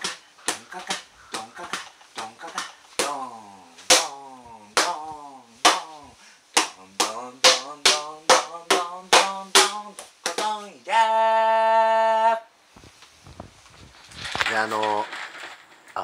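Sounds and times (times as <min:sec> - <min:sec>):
man calling out rhythm: 0:00.0 - 0:12.2.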